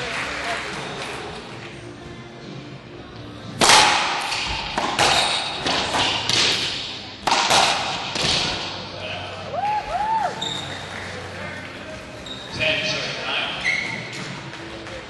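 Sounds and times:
racquet striking ball: 3.6s - 8.9s.

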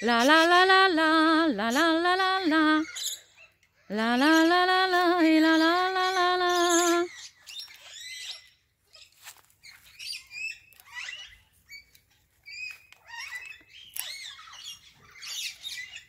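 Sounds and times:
macaw chattering squeaky chirps: 6.6s - 16.0s.

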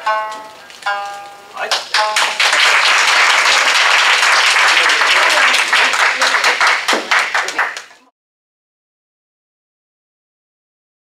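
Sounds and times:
plucked shamisen note: 0.0s - 2.4s
audience applauding: 1.7s - 8.1s.

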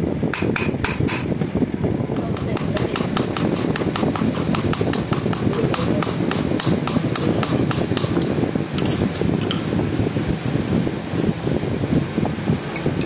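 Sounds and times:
low background rumble: 0.0s - 13.0s
hammer tapping on iron: 0.3s - 1.3s, 2.2s - 8.9s.

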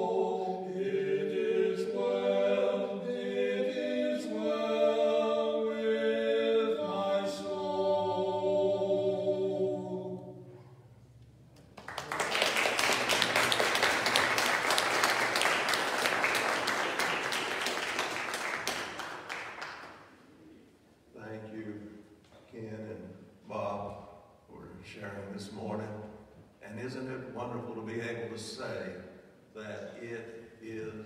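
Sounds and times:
congregation applauding: 11.6s - 20.2s.

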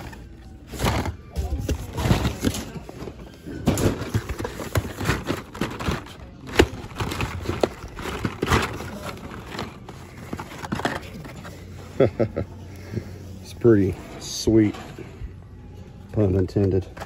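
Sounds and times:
plastic cards clacking and rustling: 0.0s - 11.7s.

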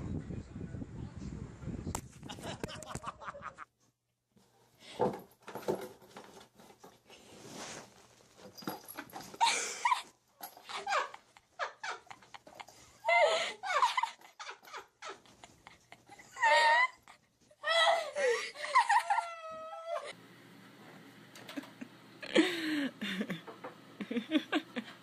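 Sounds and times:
scraping and knocking: 5.0s - 7.0s.

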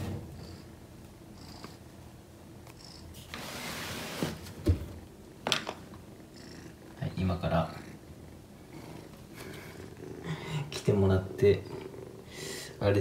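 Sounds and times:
kitten purring: 0.3s - 1.9s, 6.3s - 12.7s.

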